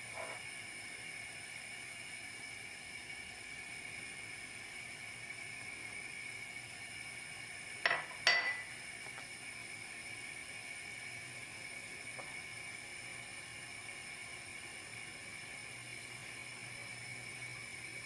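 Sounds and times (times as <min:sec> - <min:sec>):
kitchenware clinking on a dish: 0:07.9 - 0:08.7.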